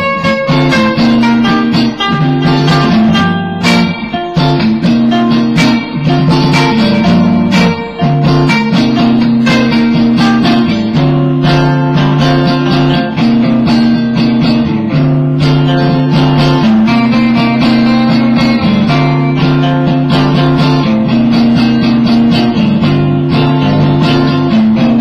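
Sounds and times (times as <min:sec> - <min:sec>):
electric guitars strumming: 0:00.0 - 0:25.0.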